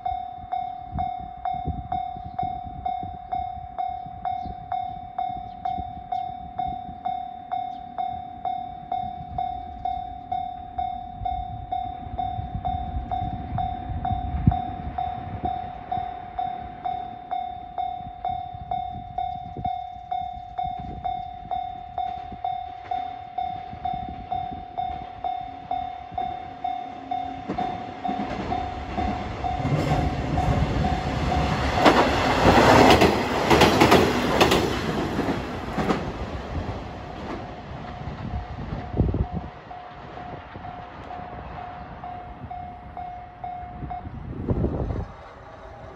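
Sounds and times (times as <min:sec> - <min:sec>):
level crossing bell ringing: 0:00.0 - 0:31.8, 0:40.6 - 0:44.3
diesel railcar engine: 0:00.0 - 0:45.9
train wheels on rails: 0:00.0 - 0:45.9.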